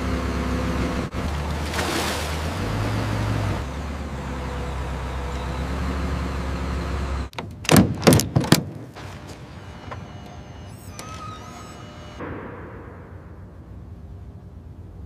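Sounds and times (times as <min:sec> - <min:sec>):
bulldozer engine rumbling: 0:00.0 - 0:12.4
background hum: 0:08.7 - 0:15.0.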